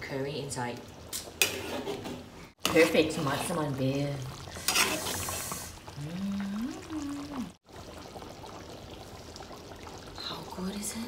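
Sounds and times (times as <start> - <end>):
person humming: 6.0 - 7.5.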